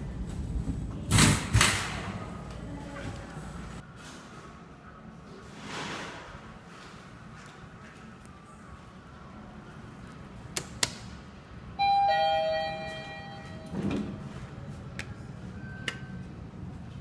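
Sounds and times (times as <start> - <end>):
elevator two-note chime: 11.8 - 13.9.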